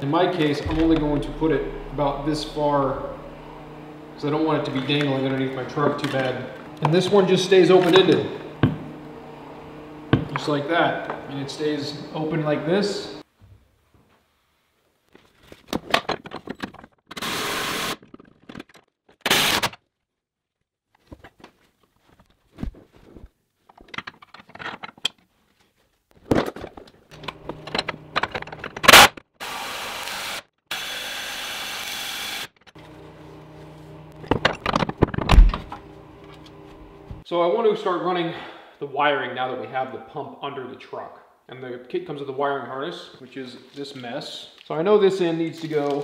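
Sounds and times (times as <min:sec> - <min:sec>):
power tool running: 0:00.6 - 0:10.4, 0:17.2 - 0:18.0, 0:27.2 - 0:37.2.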